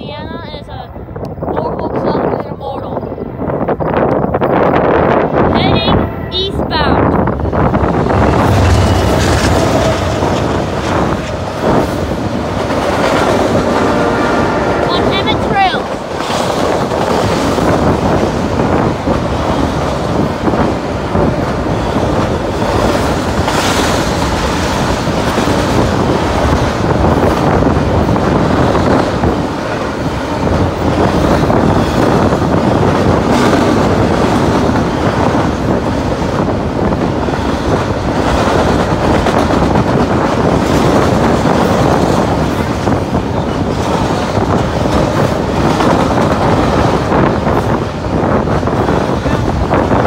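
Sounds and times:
freight train wheels rumbling: 0:00.0 - 0:50.0.

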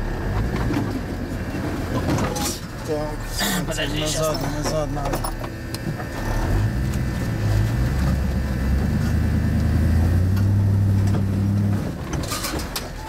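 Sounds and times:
off-road vehicle engine revving: 0:05.7 - 0:12.9.

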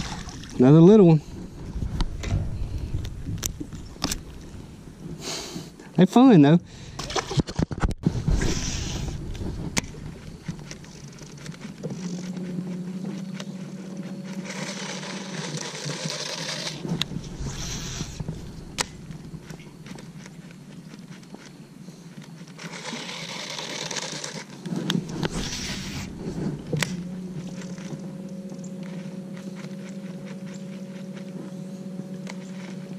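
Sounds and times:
low steady hum: 0:00.0 - 0:22.6, 0:24.5 - 0:32.9
fishing reel cranking: 0:14.2 - 0:16.8, 0:22.6 - 0:26.1.

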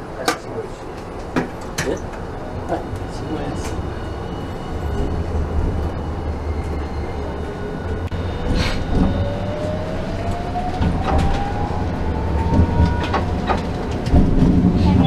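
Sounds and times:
wheels rumbling on rails: 0:00.0 - 0:15.0
clacks over rail joints: 0:12.4 - 0:15.0.

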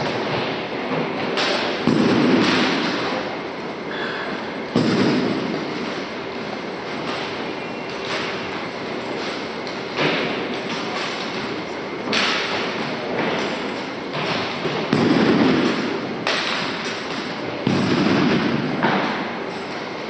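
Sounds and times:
foot stomps echoing: 0:00.0 - 0:03.2, 0:04.7 - 0:06.0, 0:12.2 - 0:19.3.

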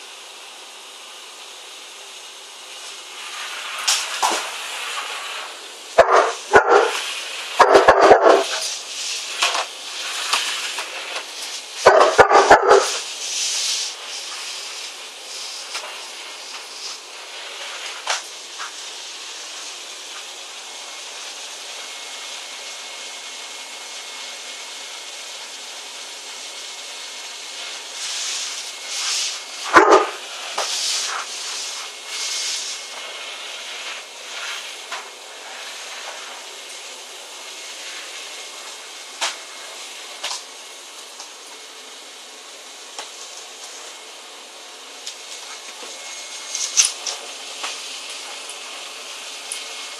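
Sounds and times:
vacuum cleaner running: 0:00.0 - 0:49.9
dog barking: 0:06.0 - 0:07.0, 0:11.8 - 0:13.0, 0:29.7 - 0:30.2.

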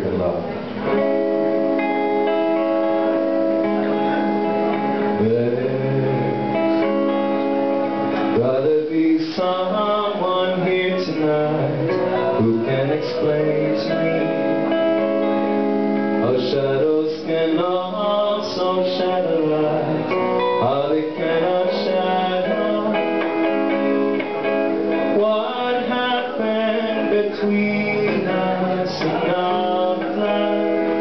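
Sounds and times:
electric guitar chords: 0:00.0 - 0:31.0
man singing: 0:03.9 - 0:15.1, 0:16.1 - 0:31.0.

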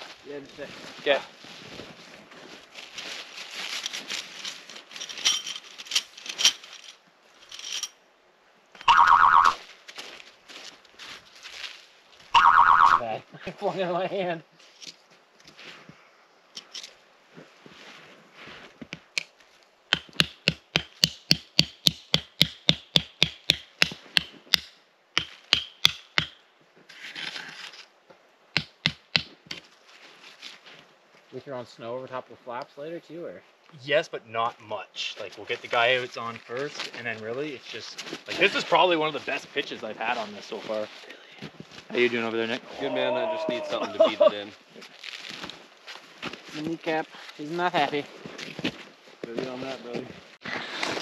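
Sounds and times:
metal tent stakes clinking: 0:03.6 - 0:08.0, 0:16.6 - 0:17.0
hammer striking tent stake: 0:19.9 - 0:26.4, 0:28.5 - 0:29.6.

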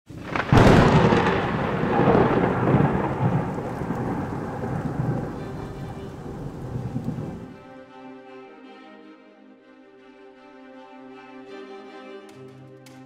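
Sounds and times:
steady rain: 0:00.1 - 0:07.6
thunder rumbling: 0:00.1 - 0:07.6.

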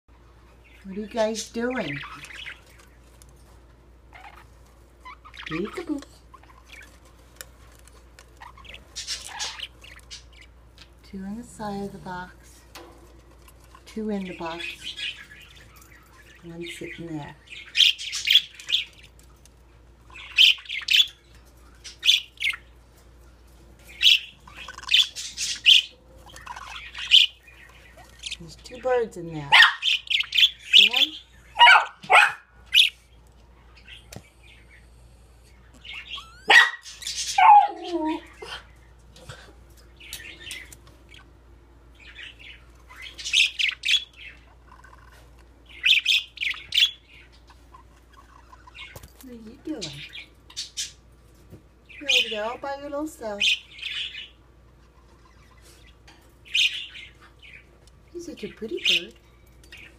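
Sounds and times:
budgerigars chirping: 0:00.6 - 0:03.2, 0:04.1 - 0:11.0, 0:13.1 - 0:19.2, 0:20.0 - 0:22.8, 0:23.8 - 0:33.1, 0:35.5 - 0:38.8, 0:39.9 - 0:51.0, 0:51.8 - 0:59.9.

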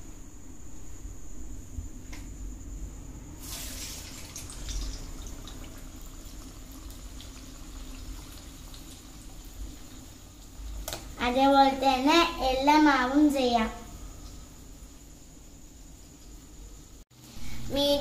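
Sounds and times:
batter sizzling in hot oil: 0:03.4 - 0:11.2.

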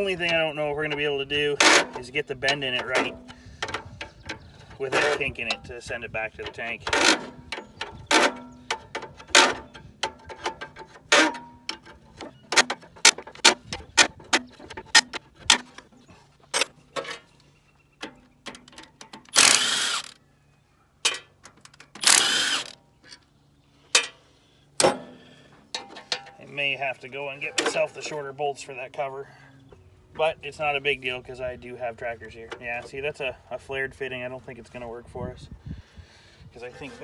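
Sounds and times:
cordless drill running: 0:19.3 - 0:20.2, 0:22.0 - 0:22.8.

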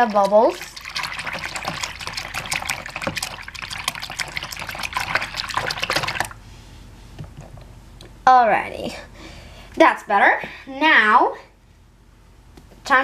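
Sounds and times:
hand splashing in soapy water: 0:00.0 - 0:06.4.

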